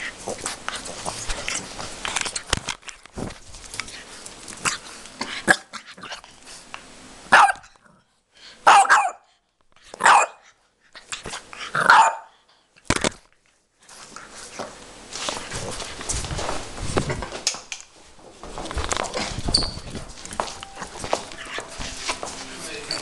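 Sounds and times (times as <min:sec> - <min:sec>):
puppy barking: 0:07.3 - 0:07.6, 0:08.6 - 0:09.3, 0:10.0 - 0:10.4, 0:11.8 - 0:12.3.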